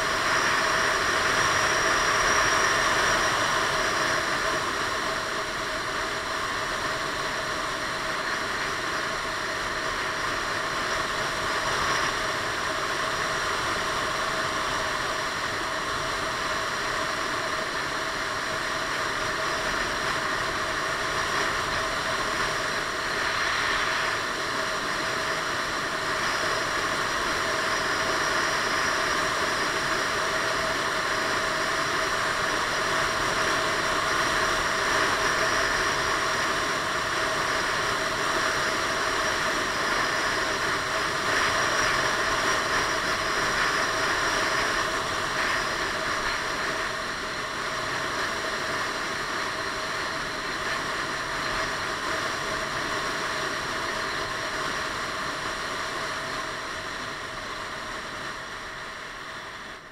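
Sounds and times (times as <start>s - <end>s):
wind and road noise: 0.0s - 59.8s.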